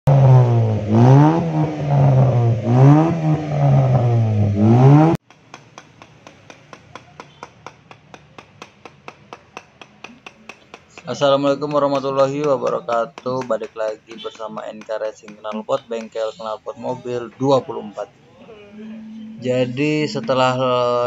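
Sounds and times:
car engine revving: 0:00.1 - 0:05.2.

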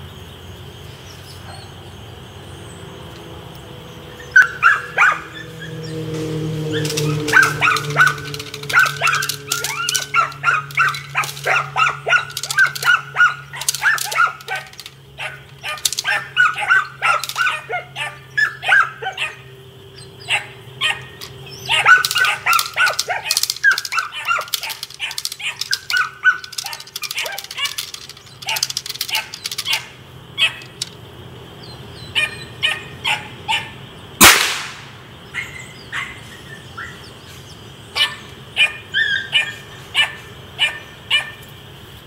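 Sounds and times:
puppy barking and yipping: 0:04.2 - 0:06.0, 0:06.6 - 0:19.6, 0:20.2 - 0:30.9, 0:32.0 - 0:33.8, 0:35.3 - 0:37.1, 0:37.9 - 0:41.4.

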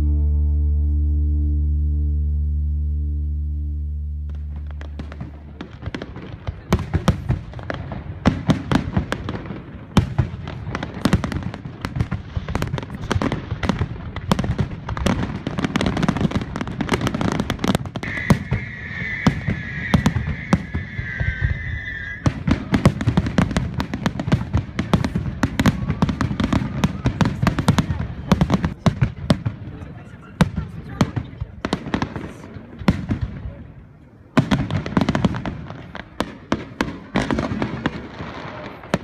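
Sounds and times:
fireworks bangs and crackling: 0:04.3 - 0:39.0
high steady whistle tone: 0:18.0 - 0:22.3.

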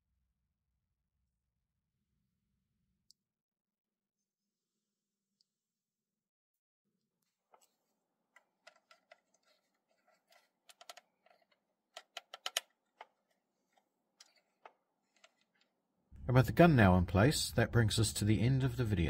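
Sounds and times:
plastic model parts clicking: 0:08.4 - 0:15.7.

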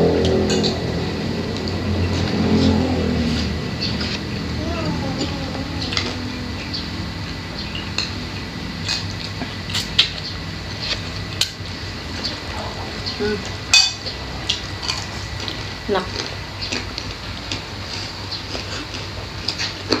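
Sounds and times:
low hum: 0:00.0 - 0:18.6
chewing and mouth clicks: 0:14.4 - 0:20.0.

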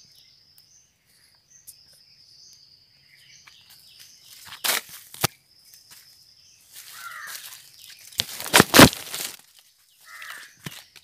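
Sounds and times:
loud crunching rustle: 0:04.3 - 0:05.3, 0:06.7 - 0:11.0.

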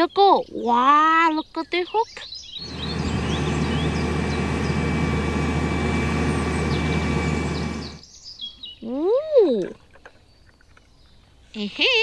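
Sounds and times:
birds chirping: 0:00.0 - 0:08.8
crane diesel engine running: 0:02.6 - 0:08.0.

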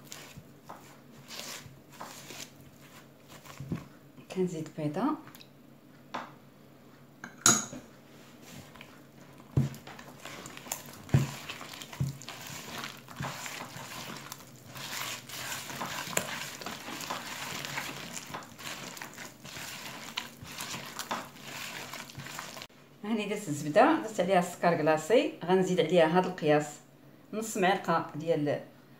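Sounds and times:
hand kneading sticky dough: 0:00.0 - 0:04.0, 0:08.2 - 0:22.7.

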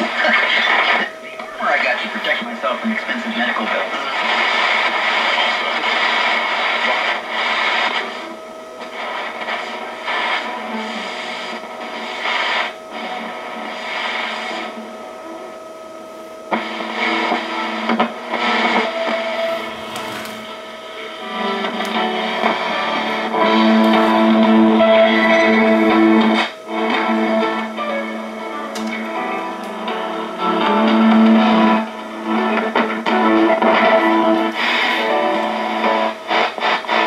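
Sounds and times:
radio static and hiss: 0:00.0 - 0:37.0
radio whistling tones: 0:16.1 - 0:29.3.

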